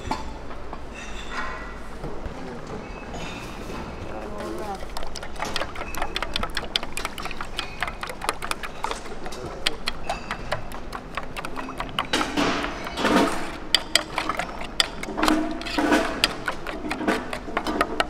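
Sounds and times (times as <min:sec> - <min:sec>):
spoon clinking in metal bowl: 0:04.4 - 0:18.0.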